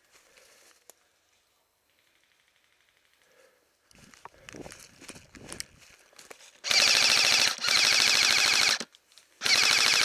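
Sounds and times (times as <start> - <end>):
airsoft rifle bursts: 6.6 - 10.0.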